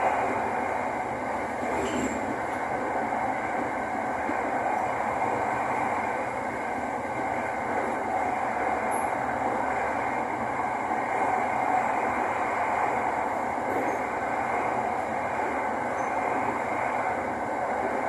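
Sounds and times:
train wheels rumbling on rails: 0:00.0 - 0:18.0.

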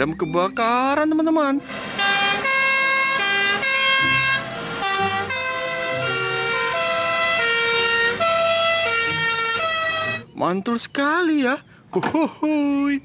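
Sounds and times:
two-tone fire engine sirens: 0:01.6 - 0:10.2
low engine hum: 0:01.6 - 0:10.4.

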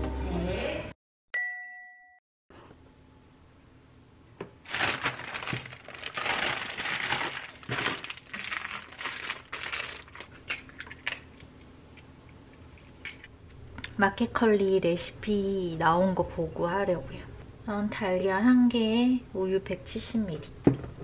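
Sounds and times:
plastic bag crinkling: 0:04.6 - 0:11.5.

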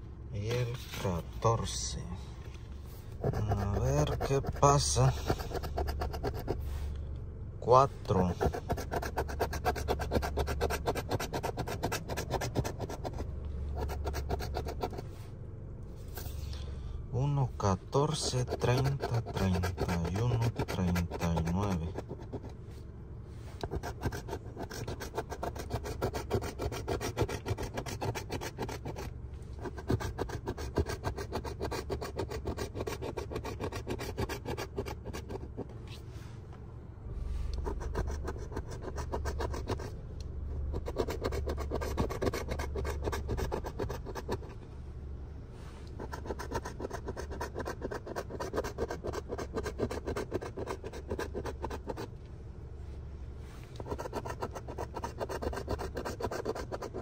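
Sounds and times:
coin scratching lottery ticket: 0:03.2 - 0:06.6, 0:08.2 - 0:15.0, 0:18.0 - 0:22.5, 0:23.6 - 0:35.7, 0:37.6 - 0:39.9, 0:40.7 - 0:44.6, 0:46.0 - 0:52.1, 0:53.8 - 0:57.0.

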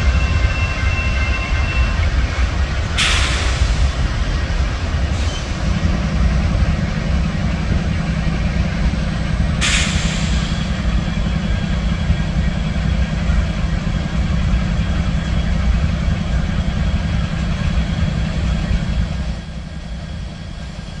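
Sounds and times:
rumble of train wheels on rail: 0:00.0 - 0:21.0.

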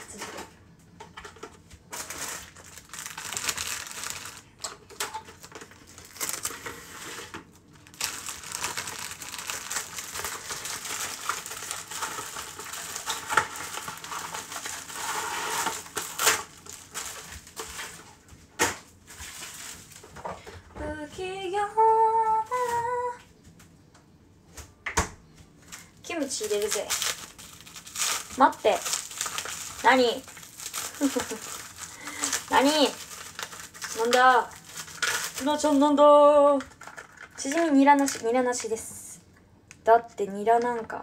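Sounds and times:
crinkling crunching rustle: 0:01.9 - 0:18.3, 0:19.0 - 0:20.2, 0:25.6 - 0:38.4.

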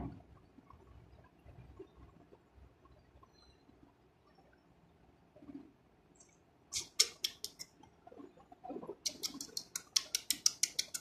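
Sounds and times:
squeaky kissing clicks: 0:06.8 - 0:07.7, 0:09.1 - 0:11.0.

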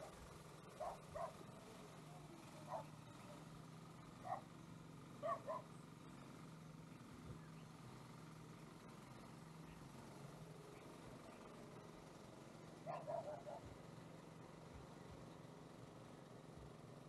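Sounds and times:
steady low hum: 0:00.0 - 0:17.0
dog barking: 0:00.8 - 0:01.4, 0:02.7 - 0:02.9, 0:04.2 - 0:04.5, 0:05.2 - 0:05.7, 0:12.9 - 0:13.7.

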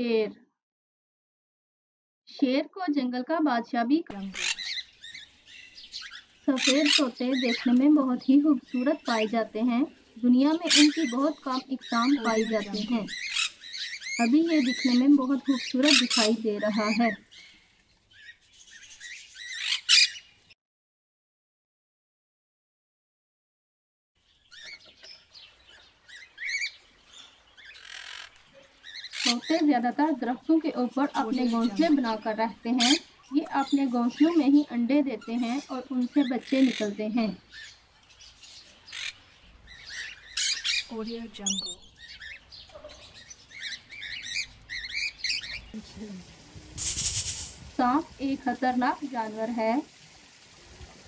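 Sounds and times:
parrot chirping: 0:04.2 - 0:20.5, 0:24.3 - 0:29.7, 0:31.1 - 0:34.4, 0:35.2 - 0:45.9
parrot screeching: 0:04.3 - 0:05.3, 0:06.0 - 0:07.0, 0:13.1 - 0:14.3, 0:15.8 - 0:16.3, 0:19.0 - 0:20.3, 0:27.7 - 0:29.4, 0:38.9 - 0:39.2, 0:39.9 - 0:40.9.

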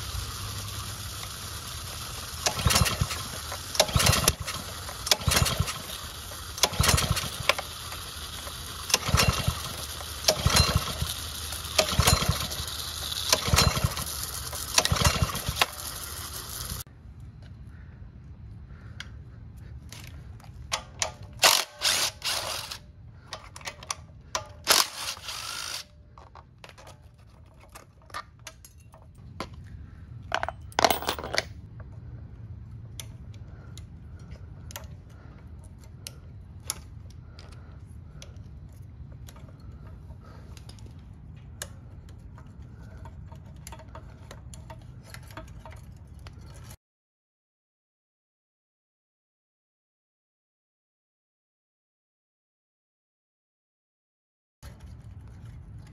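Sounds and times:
clatter of small engine parts: 0:00.0 - 0:16.8, 0:19.9 - 0:32.0, 0:32.9 - 0:46.8, 0:54.6 - 0:55.9.

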